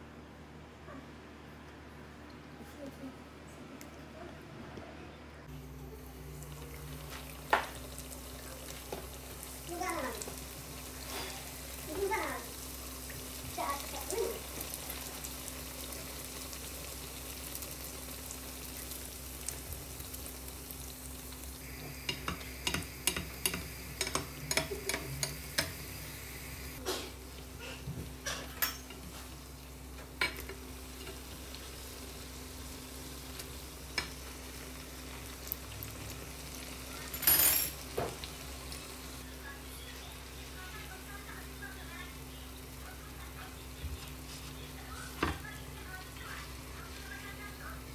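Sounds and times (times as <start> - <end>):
doughnuts sizzling in hot oil: 5.4 - 47.9
metal spoon clinking against pan: 28.6 - 29.0.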